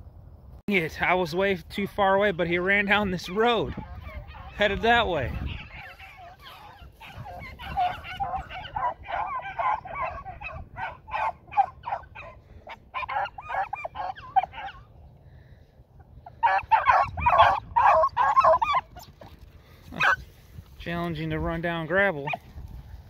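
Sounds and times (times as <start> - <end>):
pack of dogs baying: 3.2 - 15.0, 16.1 - 20.3.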